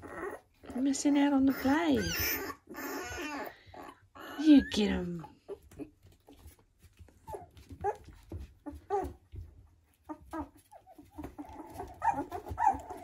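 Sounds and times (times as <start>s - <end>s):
puppies squeaking and whining: 0.0s - 13.0s
faint scuffling: 5.5s - 13.0s.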